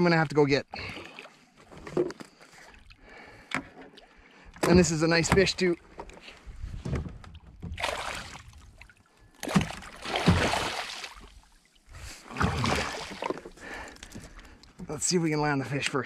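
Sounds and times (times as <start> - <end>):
fish thrashing and splashing: 7.4 - 11.4, 12.2 - 14.6.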